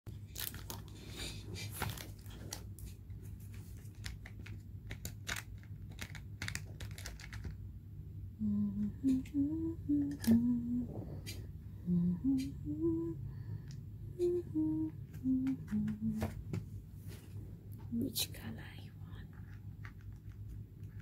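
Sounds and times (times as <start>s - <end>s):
wax beads rattling in plastic box: 3.8s - 7.6s
person humming: 8.3s - 16.4s.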